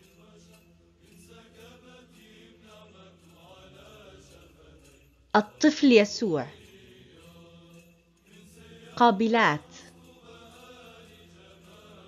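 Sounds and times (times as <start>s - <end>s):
slow chant-like music: 0.0s - 12.0s.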